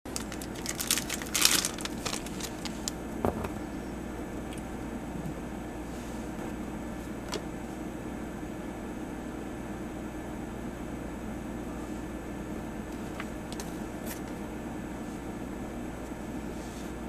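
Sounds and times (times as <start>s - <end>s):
foil wrapper crinkling and tearing: 0.1s - 3.0s
background hum: 0.1s - 17.0s.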